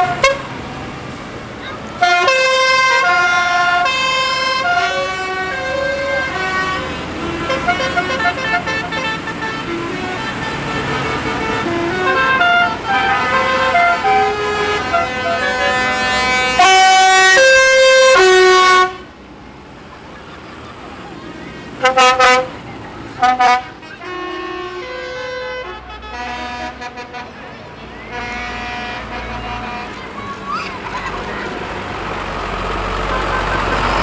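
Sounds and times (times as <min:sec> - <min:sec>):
long loud horn blast: 0:00.0 - 0:00.6, 0:02.0 - 0:19.1, 0:21.8 - 0:22.5, 0:23.1 - 0:27.4, 0:28.0 - 0:30.1
tractor horns tooting: 0:00.0 - 0:19.2, 0:20.0 - 0:34.0.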